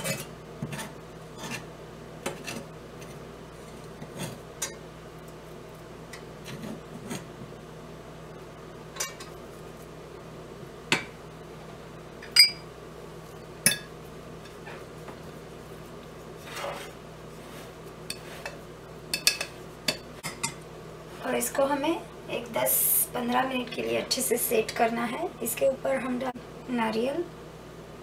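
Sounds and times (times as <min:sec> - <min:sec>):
ladle scraping: 0:16.3 - 0:18.6.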